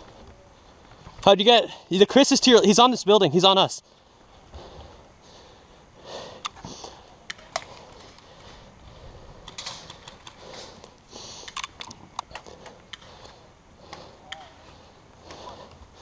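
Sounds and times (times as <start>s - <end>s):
sharp clicks and ticks: 6.4s - 6.6s, 9.4s - 13.1s.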